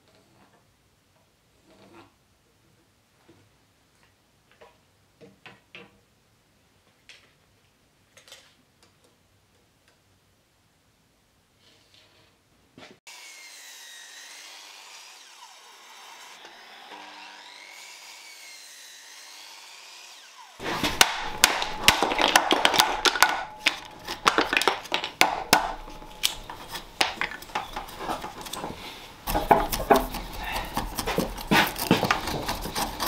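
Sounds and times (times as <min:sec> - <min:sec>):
hammer knocking out wood: 0:20.6 - 0:28.7, 0:29.3 - 0:32.6.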